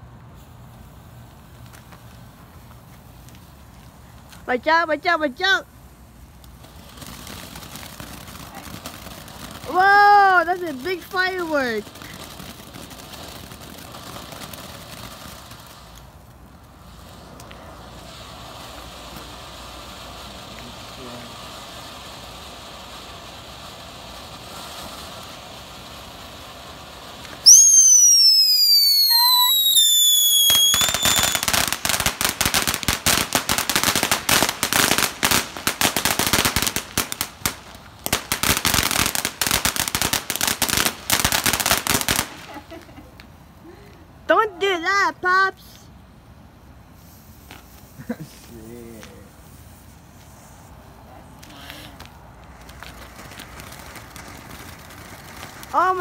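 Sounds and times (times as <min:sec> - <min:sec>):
firework crackling: 0:00.0 - 0:56.0
fountain fireworks hissing: 0:00.0 - 0:56.0
firework whistle falling in pitch: 0:27.4 - 0:31.4.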